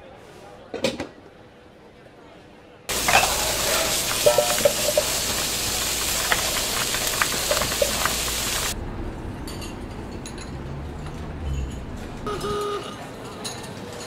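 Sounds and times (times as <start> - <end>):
pans and utensils clinking: 2.9 - 8.8
steam and frying hiss: 2.9 - 8.8.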